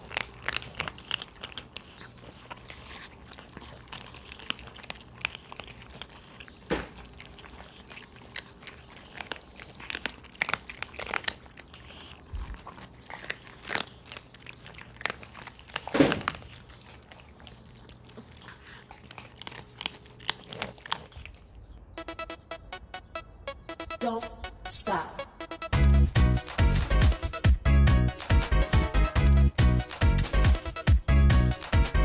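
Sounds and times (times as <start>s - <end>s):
cats crunching dry kibble: 0.0s - 21.8s.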